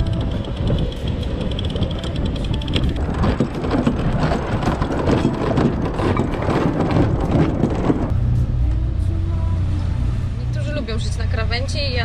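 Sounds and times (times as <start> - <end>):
winch clicks: 0.0 - 8.1
wind: 0.0 - 12.0.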